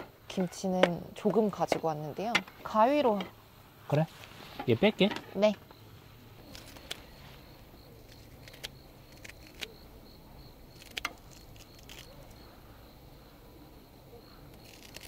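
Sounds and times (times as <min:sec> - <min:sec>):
insect chirring: 0:00.0 - 0:15.0
scissors snipping: 0:08.0 - 0:09.8, 0:10.7 - 0:12.4, 0:14.5 - 0:15.0.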